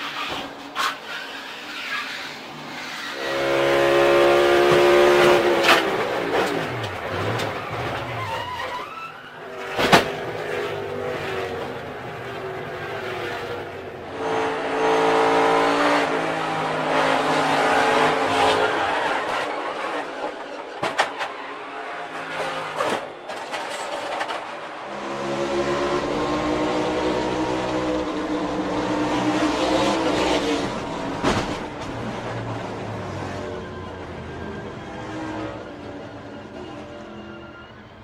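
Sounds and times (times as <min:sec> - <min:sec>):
race car engines at speed: 0:00.0 - 0:38.0.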